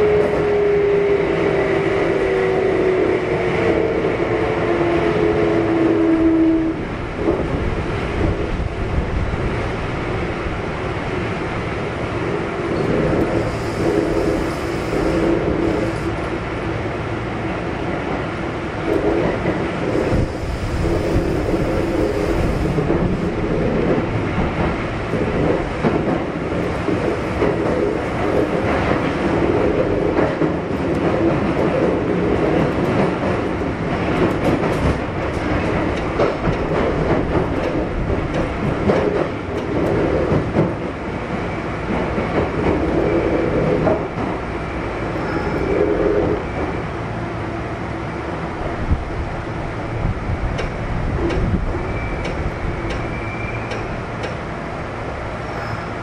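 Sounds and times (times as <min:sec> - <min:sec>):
electric train inverter whine: 0:00.0 - 0:56.0
train wheels on rails: 0:00.0 - 0:56.0
rail-joint clatter: 0:12.5 - 0:16.4, 0:18.8 - 0:46.8, 0:50.4 - 0:56.0.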